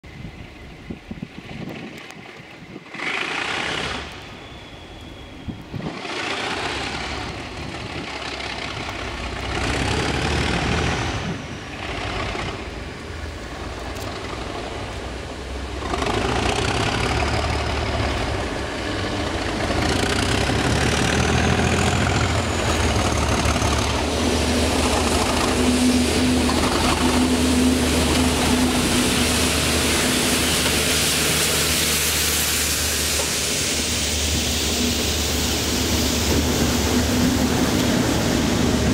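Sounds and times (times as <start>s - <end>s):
diesel locomotive engines working: 0.0s - 38.9s
high rising and falling whistle: 4.2s - 5.9s.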